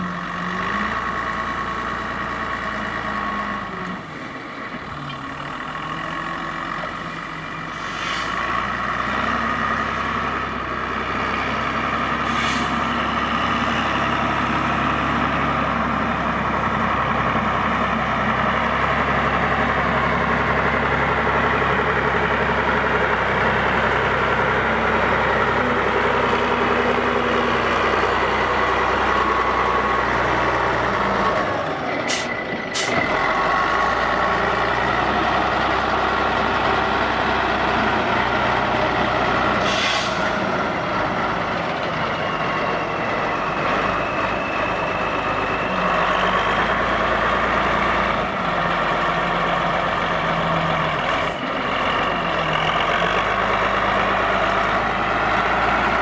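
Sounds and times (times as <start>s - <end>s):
diesel engine running under load: 0.0s - 56.0s
short hisses: 7.8s - 8.4s, 12.3s - 12.9s, 39.6s - 40.3s.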